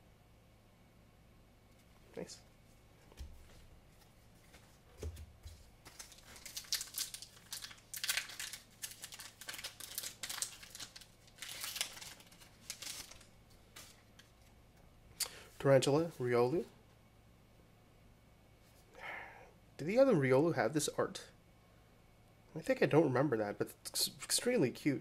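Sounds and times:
foil wrapper crinkling and tearing: 5.5 - 14.2.

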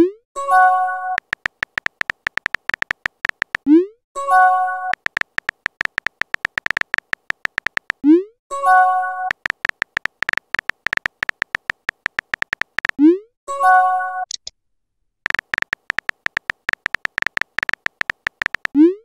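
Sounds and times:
keyboard tap clicks: 1.2 - 3.6, 4.9 - 8.0, 9.3 - 13.0, 15.3 - 18.8.

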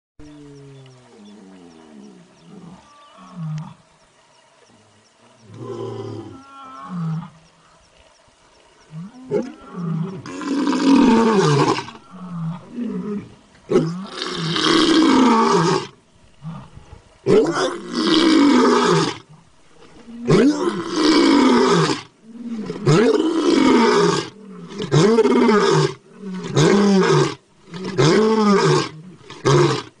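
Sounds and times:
tiger roaring: 9.0 - 19.3, 19.9 - 29.9.

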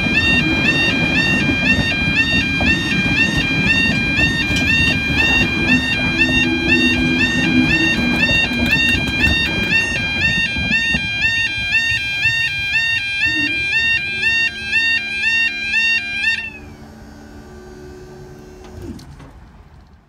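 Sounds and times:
two-tone crossing alarm warble: 0.0 - 19.0
barrier mechanism hum: 0.0 - 19.5
passing train rumble: 0.0 - 20.0.

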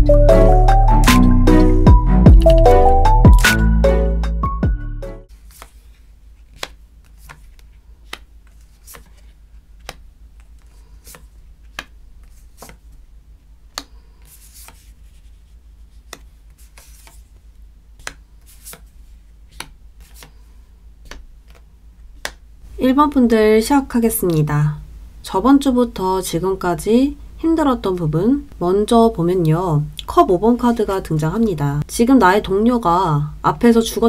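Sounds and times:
cards sliding rustle: 5.3 - 13.1, 13.7 - 22.4
cards set down on table: 6.5 - 12.8.

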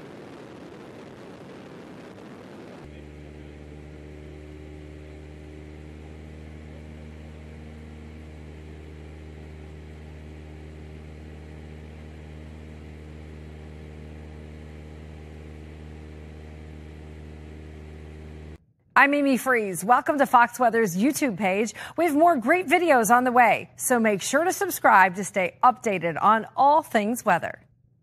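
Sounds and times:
aircraft engine drone: 0.0 - 25.6.

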